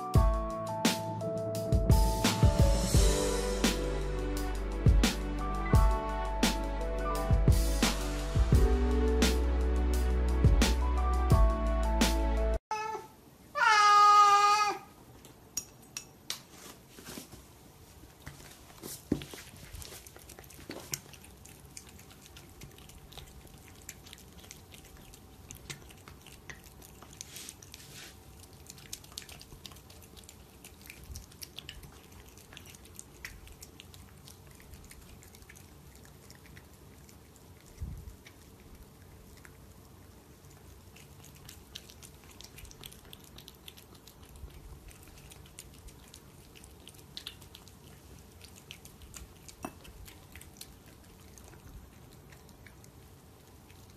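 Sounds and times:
faint steady hum: 0:12.4 - 0:53.9
cat chewing and lapping: 0:17.0 - 0:53.9.

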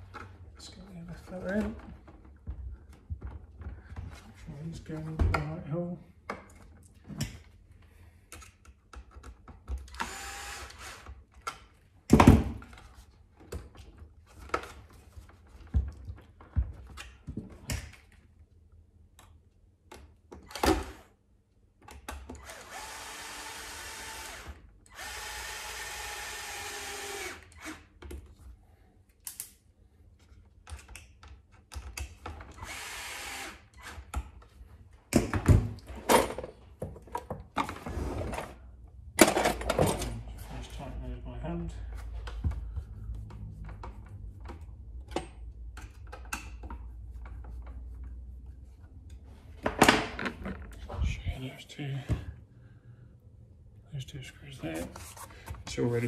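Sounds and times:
cordless drill driving screws: 0:09.9 - 0:11.1, 0:22.4 - 0:27.9, 0:32.6 - 0:34.0
parts being handled clicking: 0:29.1 - 0:29.6.

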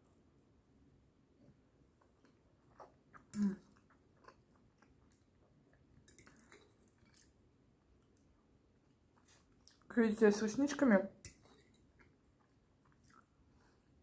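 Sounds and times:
close-up chewing: 0:02.0 - 0:09.9, 0:11.2 - 0:14.0.

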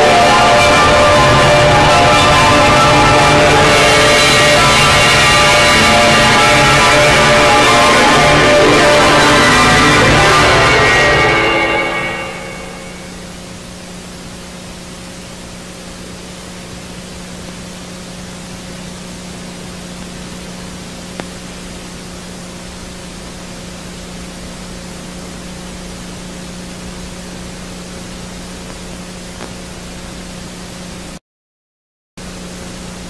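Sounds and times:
low electrical hum: 0:09.8 - 0:31.2, 0:32.2 - 0:33.0
steady hiss: 0:11.8 - 0:31.1.

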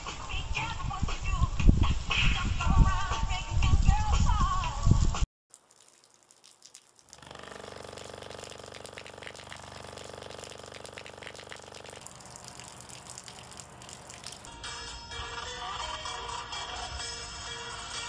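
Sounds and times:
water pouring from a tube: 0:05.5 - 0:14.5
low buzzing hum: 0:07.0 - 0:14.5.

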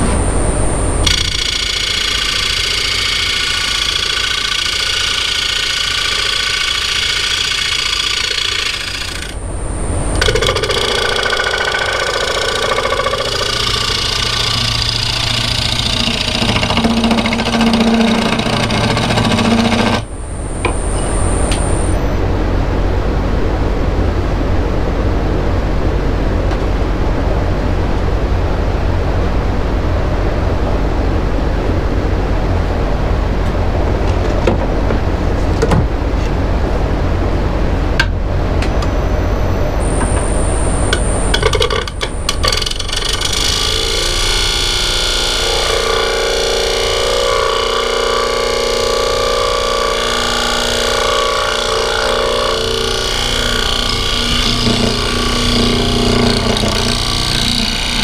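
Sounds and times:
wood lathe cutting wood: 0:00.0 - 0:22.0, 0:39.8 - 0:58.0
steady low hum: 0:00.0 - 0:58.0.

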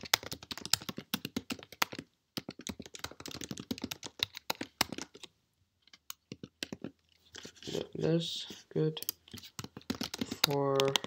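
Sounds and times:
keyboard key clicks: 0:09.0 - 0:11.0.

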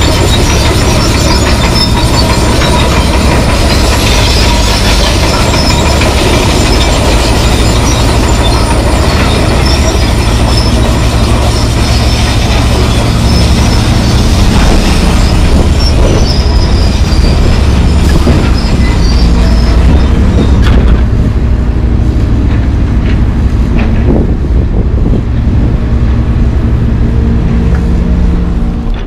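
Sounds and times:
metal-on-metal squealing: 0:00.0 - 0:21.3
excavator diesel rumble: 0:00.0 - 0:29.0.

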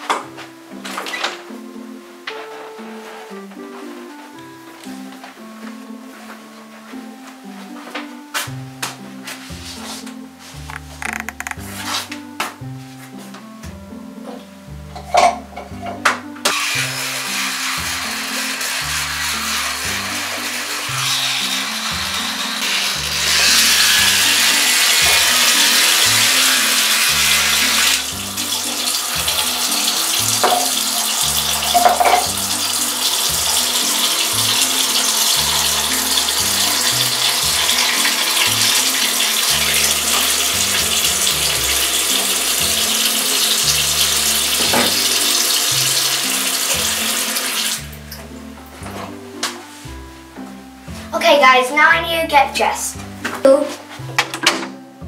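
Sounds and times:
background music bass line: 0:07.1 - 0:55.0
tap running into sink basin: 0:10.7 - 0:11.6, 0:23.3 - 0:47.8.

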